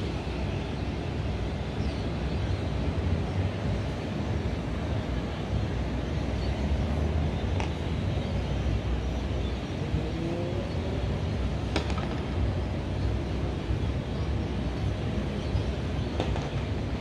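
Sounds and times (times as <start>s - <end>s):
distant traffic rumble: 0.0s - 17.0s
faint rising engine: 2.9s - 11.7s.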